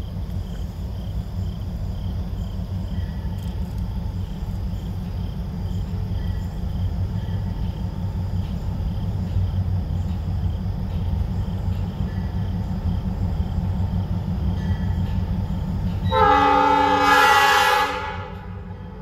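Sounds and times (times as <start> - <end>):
insects chirping: 0.0 - 19.0
low steady rumble: 0.0 - 19.0.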